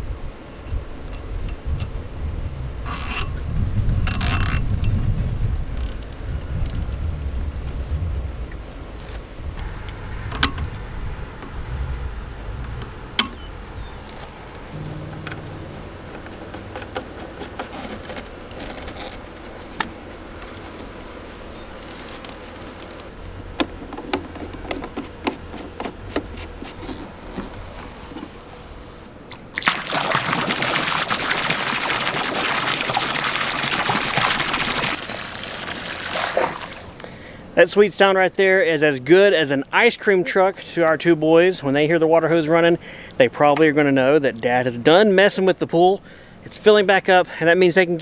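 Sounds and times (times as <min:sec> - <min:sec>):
water pouring from hose into pool: 0:29.5 - 0:37.0.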